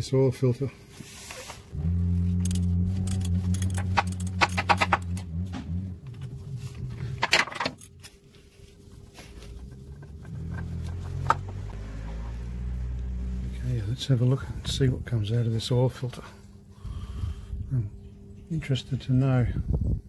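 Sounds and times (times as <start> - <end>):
ratchet clicking: 2.4 - 5.2.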